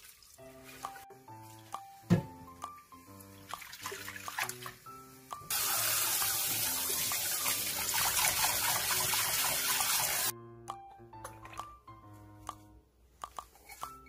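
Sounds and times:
background music: 0:00.4 - 0:14.0
kitchen tap running: 0:05.4 - 0:10.3.

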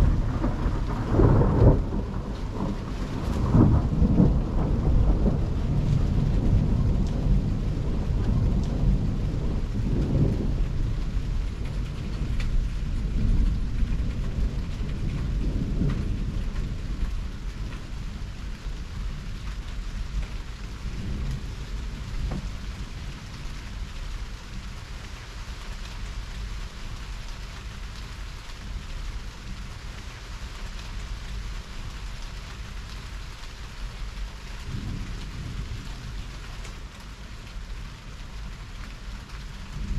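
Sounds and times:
rolling thunder: 0:00.0 - 0:24.7, 0:34.0 - 0:39.9
heavy rain: 0:00.0 - 0:39.9
raindrops ticking: 0:00.0 - 0:39.9.

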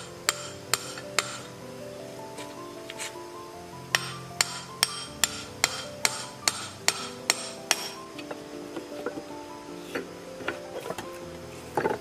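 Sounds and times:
hammer striking metal drift: 0:00.3 - 0:01.5, 0:03.9 - 0:08.0.

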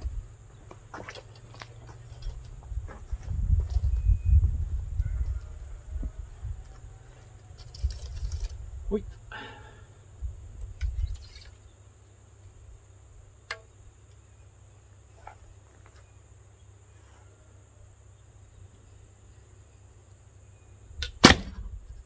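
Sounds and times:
bowstring release crack: 0:13.4 - 0:13.7
arrow handling clicks: 0:13.4 - 0:14.2.

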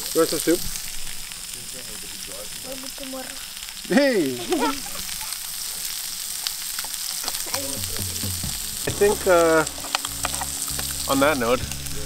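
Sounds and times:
fish sizzling in a pan: 0:00.0 - 0:12.0
person calling out loudly: 0:04.3 - 0:05.2, 0:07.3 - 0:09.0.

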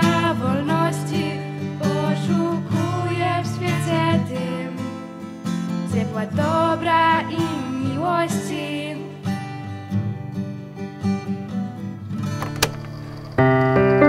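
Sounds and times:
girls singing: 0:00.0 - 0:04.9, 0:06.0 - 0:09.1
guitar chords: 0:11.2 - 0:14.0.

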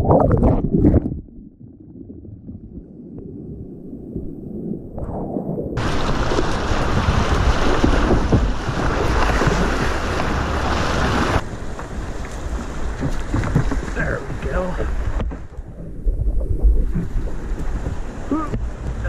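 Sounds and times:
wind noise on microphone: 0:02.0 - 0:19.0
whitewater rushing and splashing: 0:05.8 - 0:19.0.

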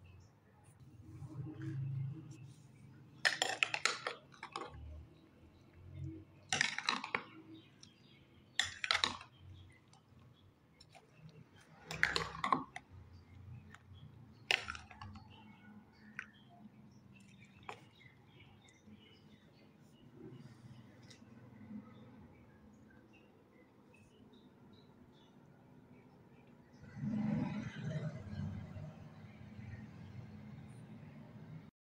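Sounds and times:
spoon clinking and scraping glass bowl: 0:03.2 - 0:05.0, 0:06.5 - 0:07.9, 0:08.6 - 0:09.9, 0:11.2 - 0:12.8.

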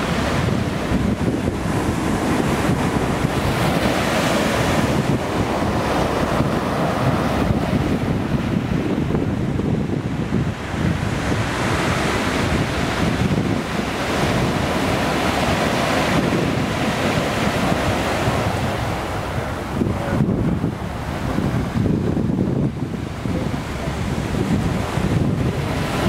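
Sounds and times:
sea waves breaking on beach: 0:00.0 - 0:26.0
wind buffeting microphone: 0:00.0 - 0:26.0.

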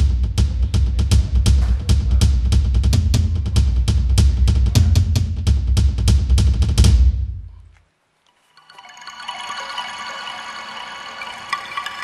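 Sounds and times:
music with drum beat and bass: 0:00.0 - 0:07.4.

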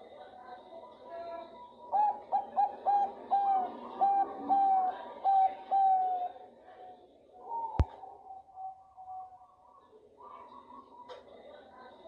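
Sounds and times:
dove cooing: 0:01.8 - 0:06.4.

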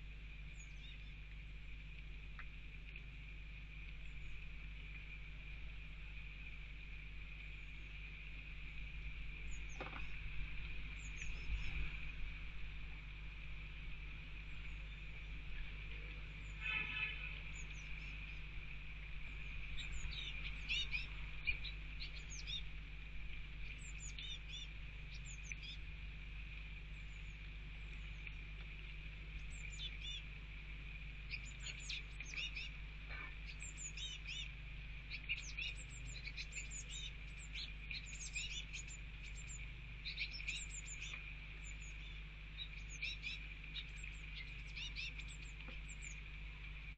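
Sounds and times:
low hum: 0:00.0 - 0:46.9
blue tits chirping: 0:09.0 - 0:12.7, 0:14.4 - 0:22.8, 0:23.4 - 0:25.9, 0:29.3 - 0:30.4, 0:31.2 - 0:46.3.

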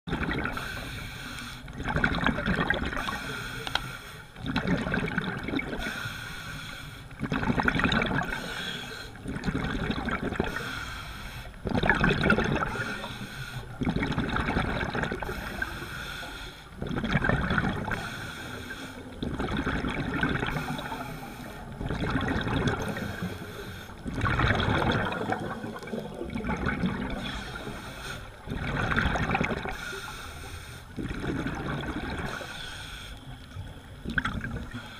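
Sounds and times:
exhaled bubbles rushing: 0:00.1 - 0:00.8, 0:01.7 - 0:03.2, 0:04.4 - 0:06.0, 0:07.2 - 0:08.6, 0:09.2 - 0:10.6, 0:11.6 - 0:13.0, 0:13.7 - 0:15.6, 0:16.8 - 0:18.2, 0:19.1 - 0:21.0, 0:21.7 - 0:29.9, 0:31.0 - 0:32.6, 0:33.4 - 0:34.9
regulator breathing hiss: 0:00.5 - 0:01.7, 0:03.0 - 0:04.3, 0:05.8 - 0:07.1, 0:08.3 - 0:09.2, 0:10.5 - 0:11.6, 0:12.7 - 0:13.8, 0:15.2 - 0:16.8, 0:17.9 - 0:19.2, 0:20.5 - 0:21.8, 0:22.8 - 0:24.1, 0:27.2 - 0:28.4, 0:29.7 - 0:31.0, 0:32.2 - 0:33.8, 0:34.6 - 0:34.9.

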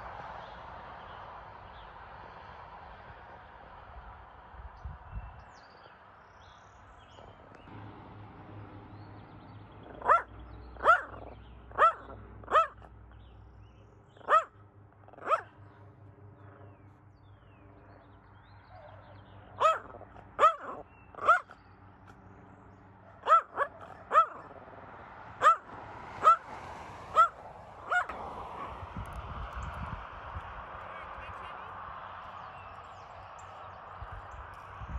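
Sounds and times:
dog barking: 0:09.8 - 0:13.0, 0:14.2 - 0:15.6, 0:18.7 - 0:21.6, 0:23.0 - 0:24.6, 0:25.4 - 0:26.5, 0:27.1 - 0:28.7.

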